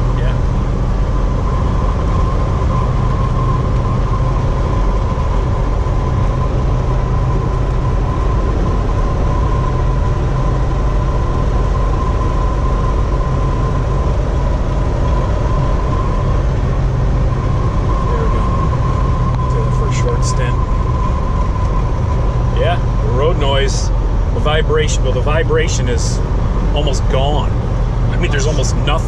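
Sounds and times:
engine and road rumble: 0:00.0 - 0:29.0
steady high tone: 0:00.0 - 0:29.0.

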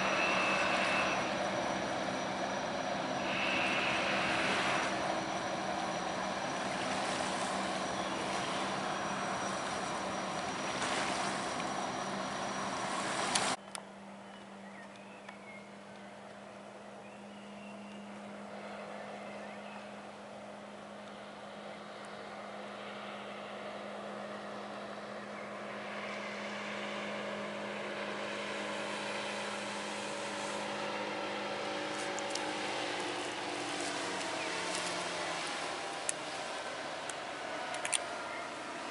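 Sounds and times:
hiss of spray and wake: 0:00.0 - 0:13.6, 0:25.6 - 0:38.9
motorboat outboard motor: 0:00.0 - 0:38.9.

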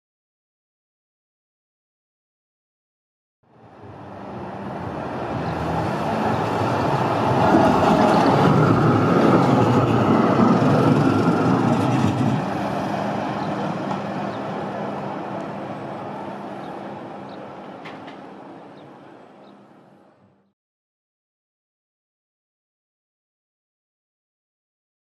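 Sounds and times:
tram wheels rumbling on rails: 0:03.5 - 0:20.1
tram motor hum: 0:03.5 - 0:20.5.

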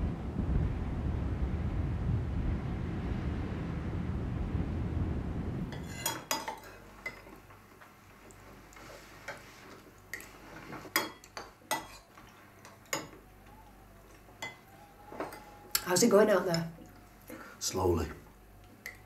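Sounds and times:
low wind rumble: 0:00.0 - 0:06.0, 0:12.4 - 0:16.4
cutlery clinking on plates: 0:05.8 - 0:07.4, 0:09.2 - 0:13.2.

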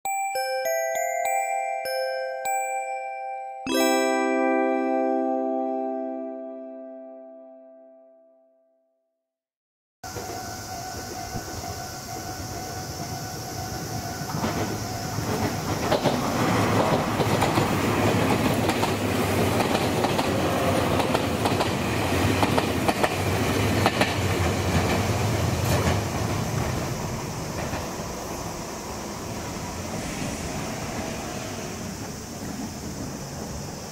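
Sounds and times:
level crossing bell ringing: 0:00.0 - 0:08.4
train wheels clacking on rails: 0:10.1 - 0:33.9.

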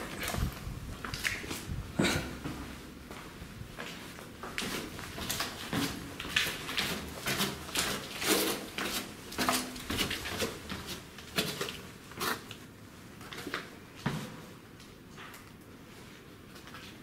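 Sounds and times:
footsteps on gritty concrete stairs: 0:00.0 - 0:12.5.

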